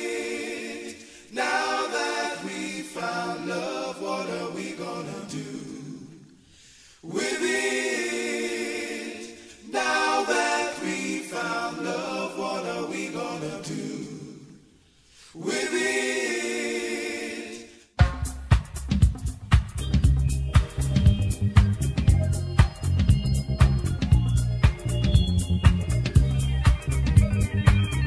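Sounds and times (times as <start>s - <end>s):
voices singing in harmony: 0.0s - 18.0s
dance track with bass beat: 18.0s - 28.0s.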